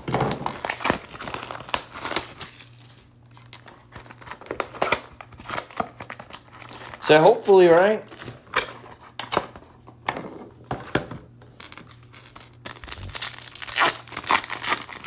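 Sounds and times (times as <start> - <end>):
card pack wrappers crinkling and tearing: 0.1 - 8.4, 11.6 - 15.0.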